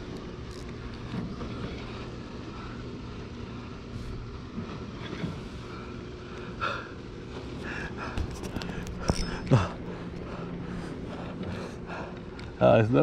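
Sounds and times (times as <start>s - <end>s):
low engine drone: 0.0s - 13.0s.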